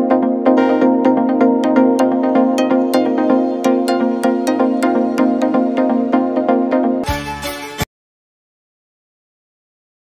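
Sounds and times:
electronic music with synth chords: 0:00.0 - 0:07.9.

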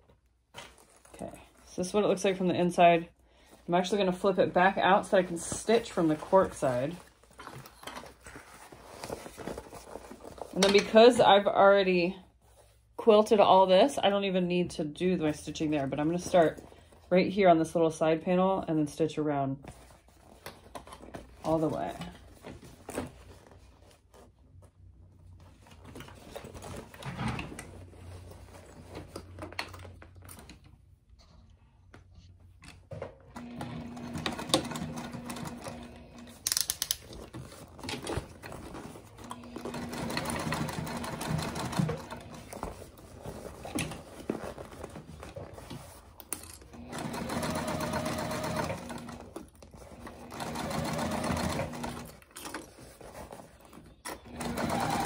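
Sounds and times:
sewing machine stitching: 0:33.4 - 0:36.6, 0:39.2 - 0:42.6, 0:46.7 - 0:52.2, 0:54.1 - 0:55.0.

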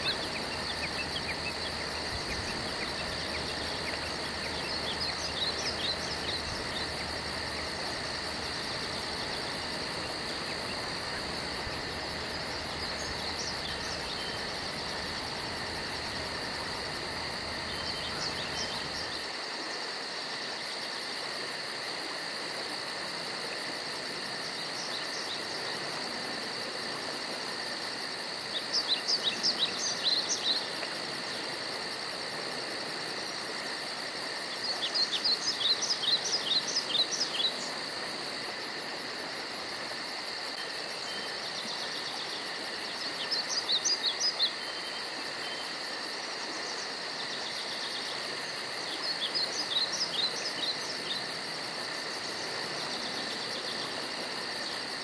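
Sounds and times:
songbird chirping: 0:00.0 - 0:19.2
insects trilling: 0:00.0 - 0:55.0.

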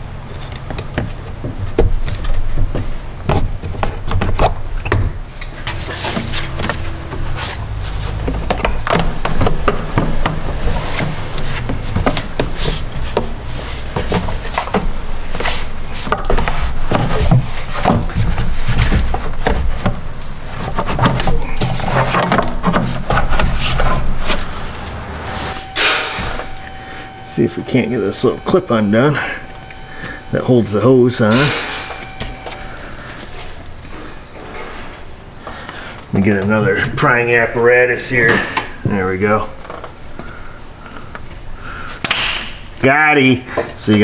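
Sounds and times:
plastic rubbing on rubber: 0:05.6 - 0:25.8.

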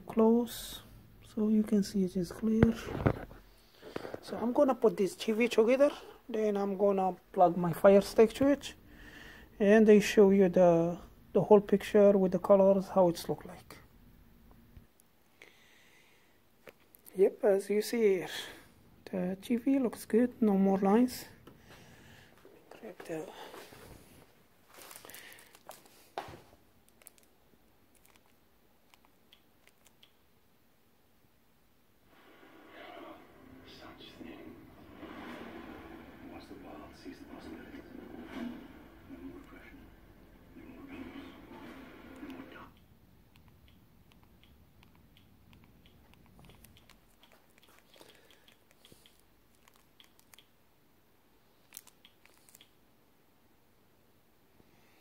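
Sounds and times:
rustling handling noise: 0:22.4 - 0:28.4, 0:46.2 - 0:50.4
soft small clicks: 0:28.0 - 0:30.2, 0:42.8 - 0:50.6.

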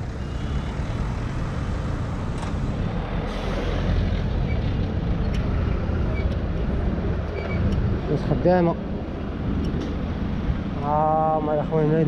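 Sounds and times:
street traffic noise: 0:00.0 - 0:12.0.

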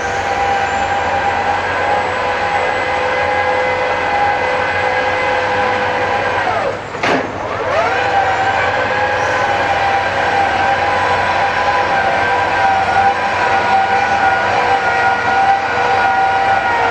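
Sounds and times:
drilling rig mechanical whine: 0:00.0 - 0:16.9.

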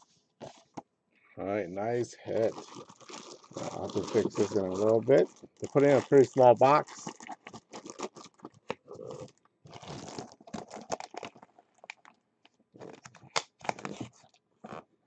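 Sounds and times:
plastic wrapping crinkling: 0:02.2 - 0:12.2, 0:12.8 - 0:14.8
cardboard box rustling: 0:02.3 - 0:06.0.

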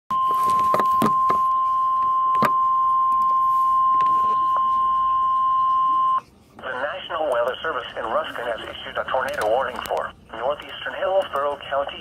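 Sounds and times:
loud steady alarm beep: 0:00.1 - 0:06.2
static crackle clicks: 0:08.6 - 0:12.0.

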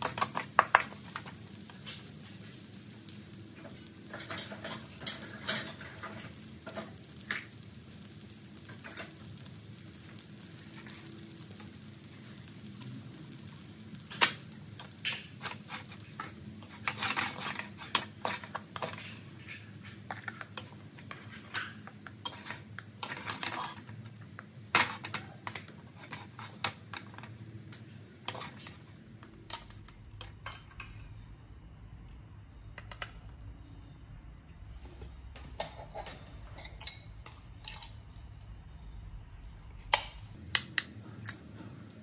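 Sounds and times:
wooden spatula scraping a wok: 0:14.8 - 0:24.1, 0:24.8 - 0:27.3, 0:28.2 - 0:29.0.

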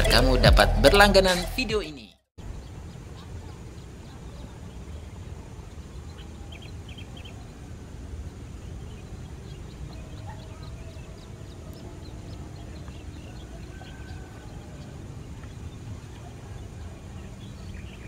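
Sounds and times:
bird chirps: 0:02.4 - 0:18.0
low outdoor rumble: 0:02.4 - 0:18.0.

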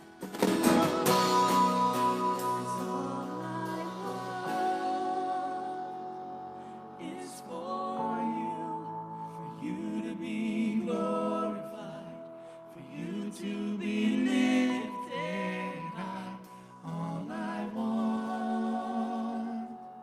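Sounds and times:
acoustic guitar: 0:00.0 - 0:08.0
keyboard: 0:00.0 - 0:20.0
people singing: 0:00.6 - 0:20.0.

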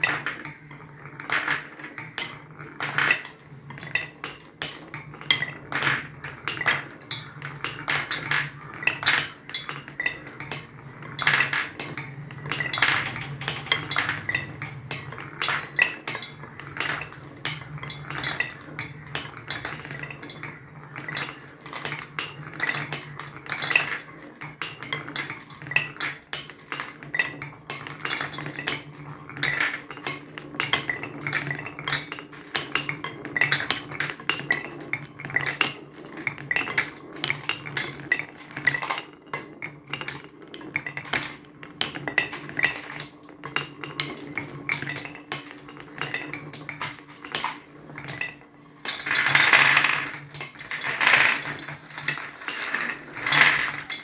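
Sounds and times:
marbles clacking against wood: 0:00.0 - 0:54.0
marbles rolling on wooden tracks: 0:00.0 - 0:54.0.

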